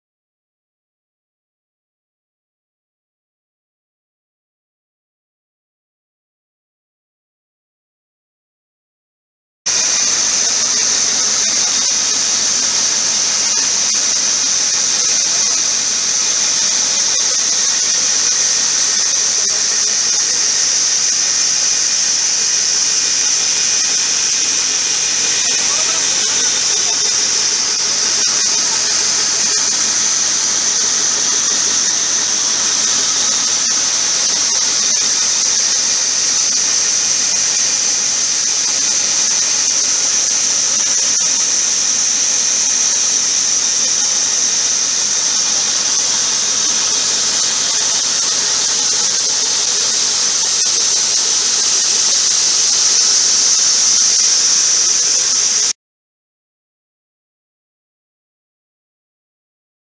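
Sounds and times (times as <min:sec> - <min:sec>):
mist sprayer hissing: 0:09.7 - 0:55.7.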